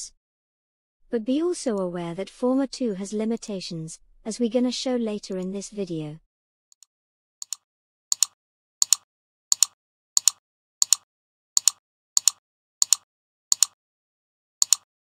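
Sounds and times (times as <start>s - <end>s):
mouse button clicking: 7.4s - 11.0s, 11.6s - 13.8s, 14.6s - 14.8s.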